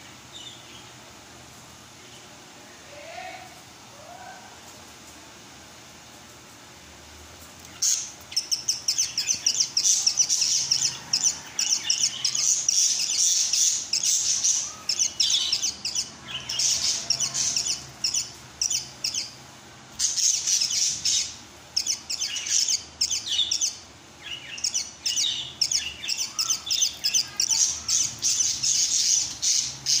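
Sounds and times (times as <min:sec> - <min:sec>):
budgerigar chirping: 0:07.8 - 0:19.4, 0:20.0 - 0:30.0.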